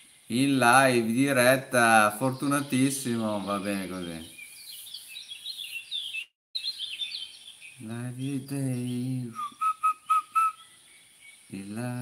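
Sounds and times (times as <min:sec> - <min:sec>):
man's voice: 0:00.3 - 0:04.4, 0:07.8 - 0:09.4, 0:11.5 - 0:12.0
short whistled notes: 0:09.3 - 0:10.6.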